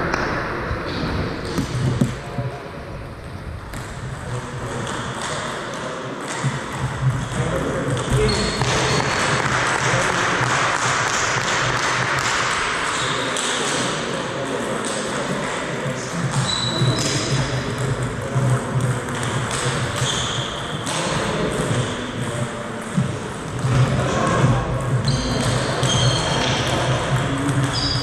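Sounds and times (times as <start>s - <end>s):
sports hall background noise: 0.0s - 28.0s
high squeaks: 25.0s - 26.6s.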